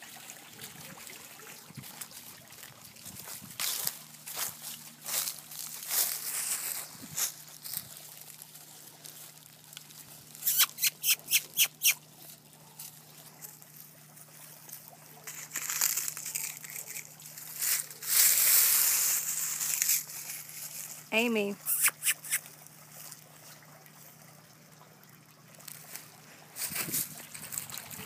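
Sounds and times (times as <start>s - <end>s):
dry leaves crackling and rustling: 1.9s - 10.5s, 12.3s - 21.5s, 25.6s - 28.0s.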